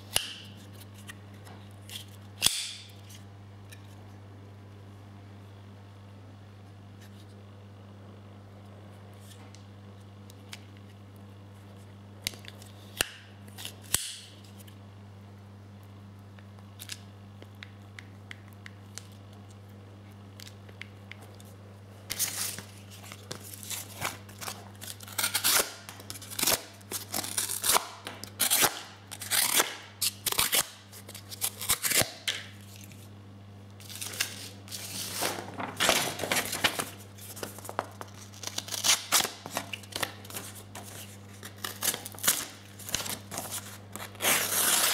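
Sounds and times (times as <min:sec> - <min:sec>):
steady low hum: 0:00.0 - 0:44.9
knife slicing paper: 0:40.3 - 0:44.9.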